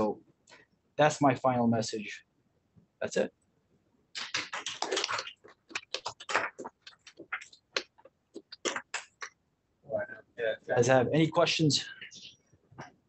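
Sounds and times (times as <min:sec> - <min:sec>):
audience applauding: 0:04.2 - 0:06.5.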